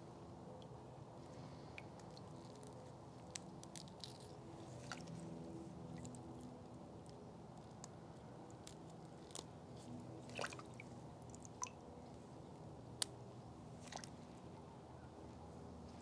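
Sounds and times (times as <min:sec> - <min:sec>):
gloved hands handling plant roots: 0:01.3 - 0:05.3.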